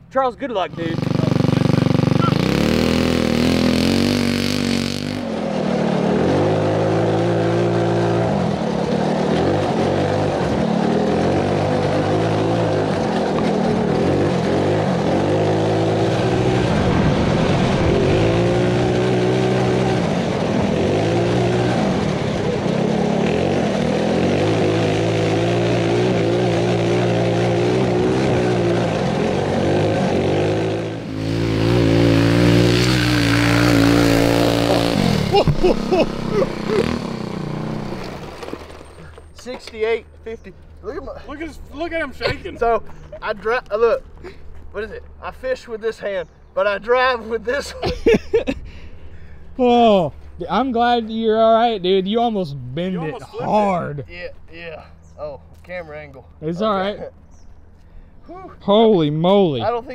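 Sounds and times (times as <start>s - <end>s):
go-kart engine revving: 0.2s - 43.8s.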